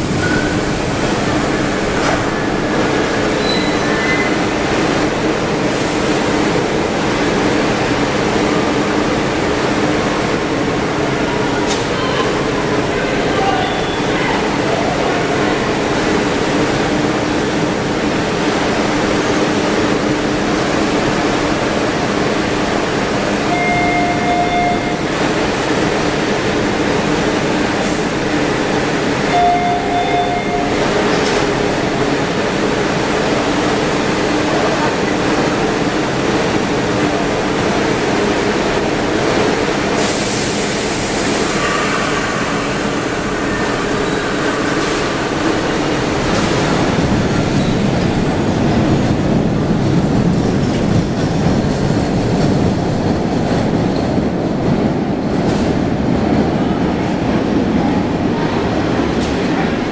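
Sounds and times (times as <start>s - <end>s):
subway station hum and rumble: 0.0s - 59.9s
short electronic beeps: 23.6s - 25.1s, 29.3s - 30.8s.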